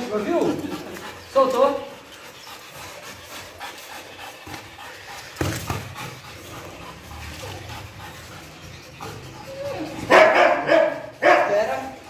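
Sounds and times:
dog panting: 0:00.0 - 0:12.0
thump: 0:05.4 - 0:05.8.

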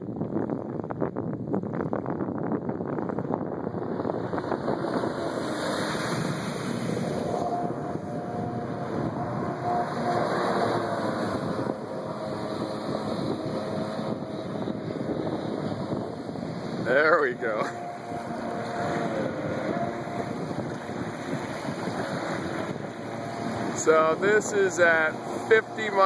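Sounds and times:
jet boat engine whine: 0:00.1 - 0:26.0
rushing water: 0:04.0 - 0:26.0.

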